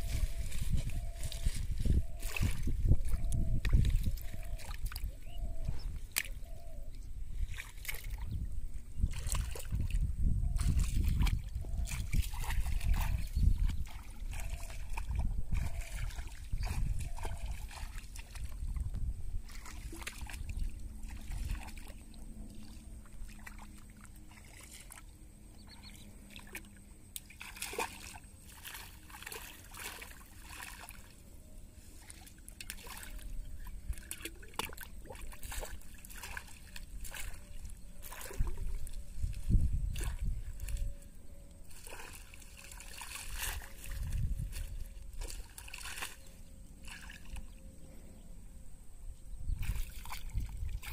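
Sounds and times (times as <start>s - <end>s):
shallow water splashing: 9.0s - 31.3s, 31.9s - 47.6s, 49.6s - 50.9s.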